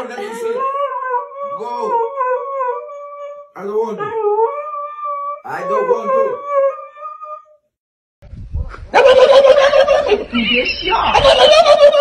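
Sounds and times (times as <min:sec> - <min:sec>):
dog howling: 0:00.2 - 0:07.6.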